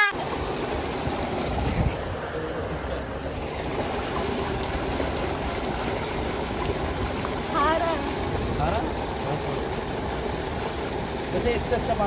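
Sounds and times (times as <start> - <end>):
water rushing in channel: 0.0 - 12.0.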